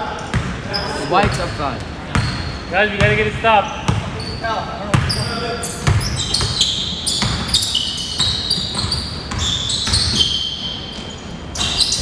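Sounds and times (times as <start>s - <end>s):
sneakers squeaking: 0.1s - 12.0s
basketball bouncing: 3.9s - 4.2s, 4.9s - 6.6s, 7.2s - 7.6s.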